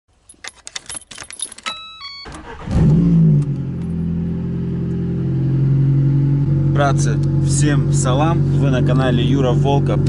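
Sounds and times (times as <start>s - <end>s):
keys jangling: 0.2s - 1.9s
car engine revving and idling: 2.5s - 10.0s.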